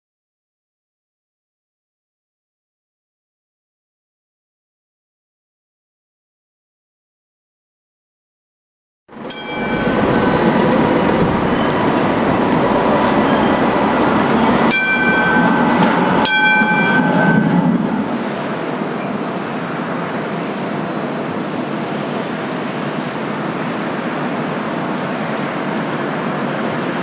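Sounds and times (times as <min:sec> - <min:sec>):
tram passing with high whine: 0:09.1 - 0:27.0
tram rumble: 0:09.1 - 0:27.0.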